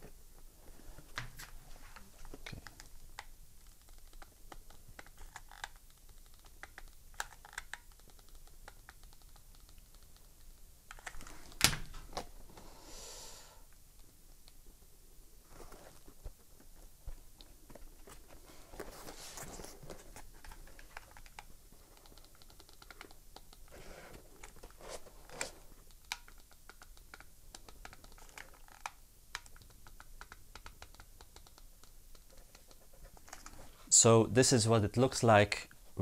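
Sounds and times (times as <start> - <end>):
rustling: 14.6 - 29.8.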